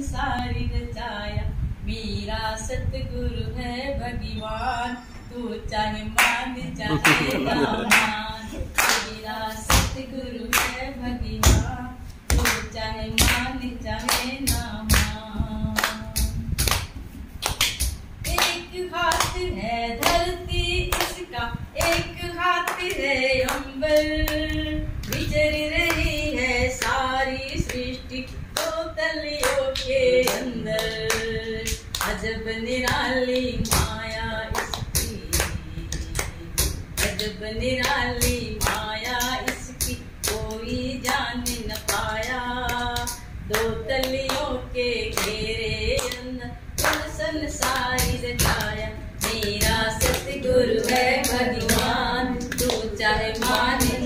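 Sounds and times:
woman singing devotional song: 0.0s - 54.0s
hand clapping: 6.2s - 8.2s, 8.8s - 10.8s, 11.4s - 11.6s, 12.3s - 15.2s, 15.8s - 19.4s, 20.9s - 21.2s, 21.8s - 26.1s, 29.4s - 32.2s, 32.8s - 44.5s, 45.1s - 54.0s.

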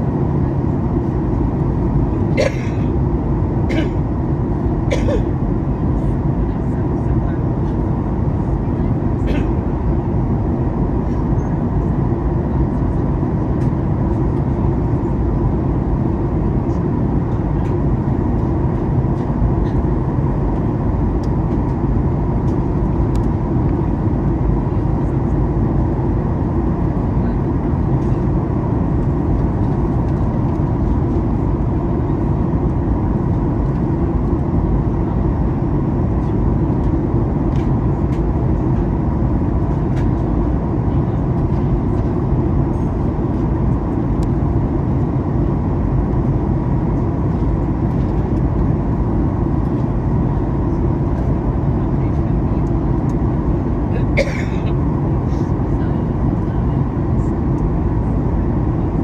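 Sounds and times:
airliner cabin engine rumble: 0.0s - 59.0s.

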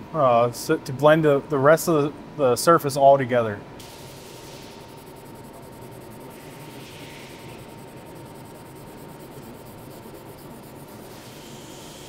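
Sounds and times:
steady hiss: 3.8s - 12.0s
thin steady tone: 3.8s - 12.0s
polishing stone rubbing on steel: 4.5s - 12.0s.

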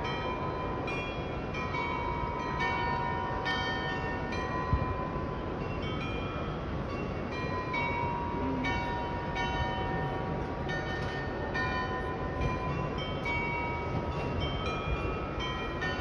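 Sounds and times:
bells playing slow tune: 0.0s - 16.0s
steady background noise: 0.0s - 16.0s.

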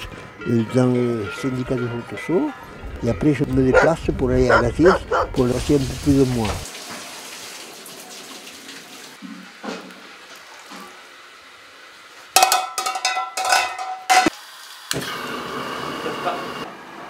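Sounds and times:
milk can clanking against metal pot: 12.4s - 14.3s.

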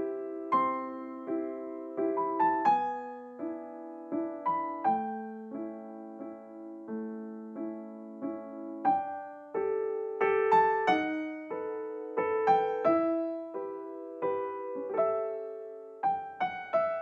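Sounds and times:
solo piano music: 0.0s - 17.0s.

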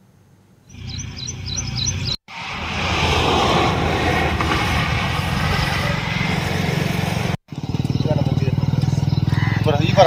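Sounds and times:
small bird chirping: 0.7s - 2.2s, 7.5s - 9.9s
loud noisy rumble: 2.3s - 8.5s.

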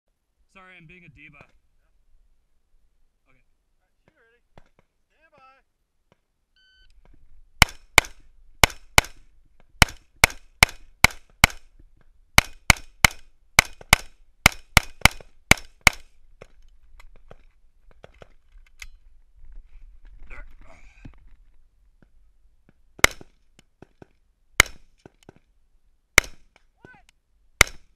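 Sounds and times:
shot timer beep: 6.6s - 6.9s.

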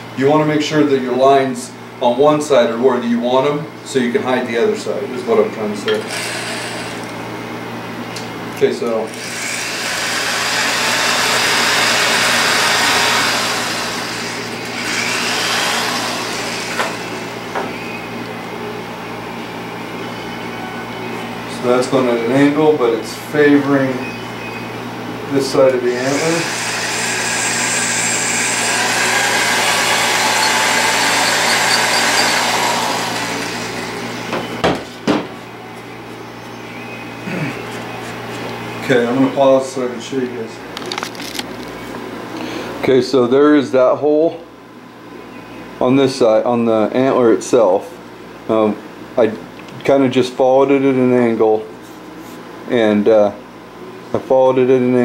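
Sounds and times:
electric drill grinding into antler: 5.9s - 7.2s, 9.1s - 17.6s, 25.9s - 34.4s
puffs of breath blowing: 42.3s - 42.8s.

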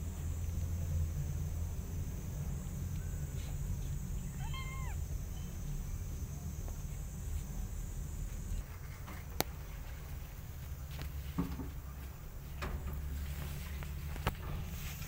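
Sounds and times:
steady low rumble: 0.0s - 15.0s
kitten meowing: 4.2s - 5.0s.

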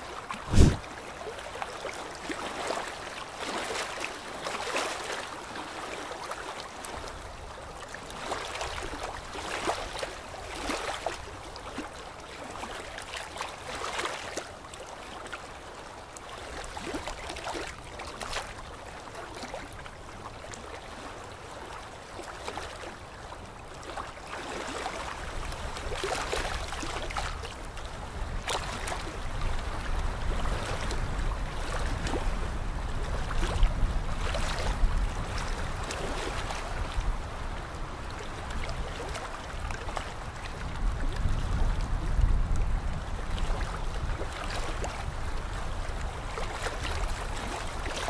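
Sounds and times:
low rumble: 0.4s - 0.8s.

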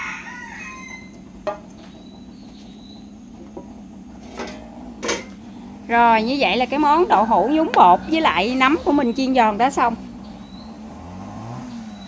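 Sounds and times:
rooster crowing: 0.0s - 1.2s, 6.8s - 9.0s.

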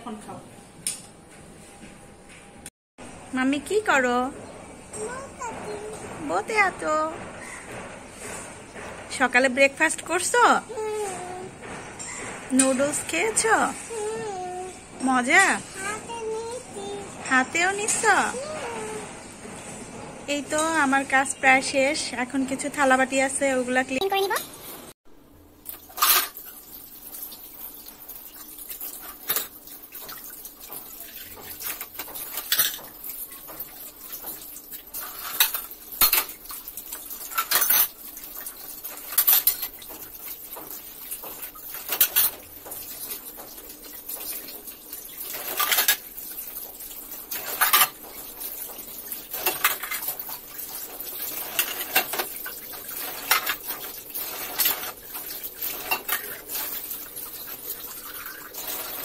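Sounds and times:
tap running: 25.6s - 59.0s
dishes clinking: 27.8s - 59.0s.

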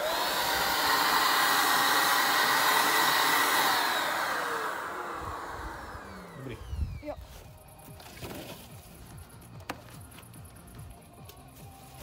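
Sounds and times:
electric paint spray gun whirring: 0.0s - 11.0s.

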